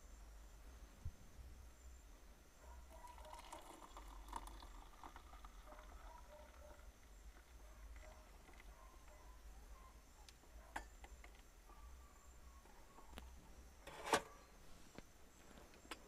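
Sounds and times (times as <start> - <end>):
water pouring into mug: 3.0 - 8.7.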